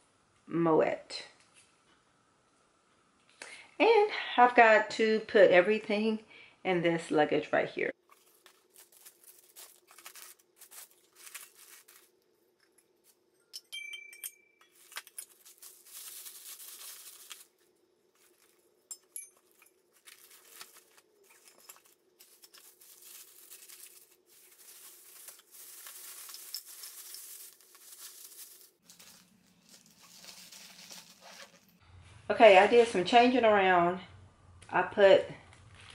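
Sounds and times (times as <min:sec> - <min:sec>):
plastic wrapping crinkling: 0:08.0 - 0:13.3, 0:14.7 - 0:31.8.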